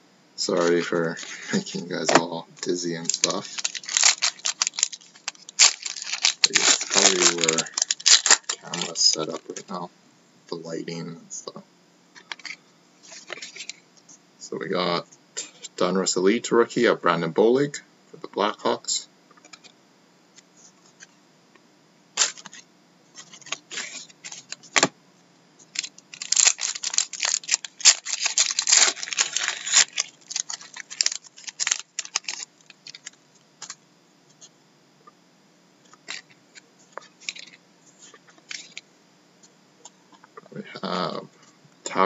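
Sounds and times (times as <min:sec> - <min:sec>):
cards being handled: 0:00.6 - 0:09.6, 0:22.2 - 0:22.6, 0:25.7 - 0:33.8
foil wrapper crinkling: 0:00.6 - 0:09.7, 0:22.2 - 0:22.6, 0:23.2 - 0:24.9, 0:25.6 - 0:33.8, 0:37.0 - 0:37.6.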